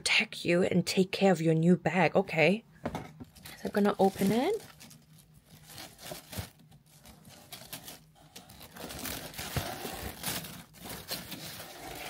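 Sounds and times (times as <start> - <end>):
paper crinkling and rustling: 3.4 - 12.0.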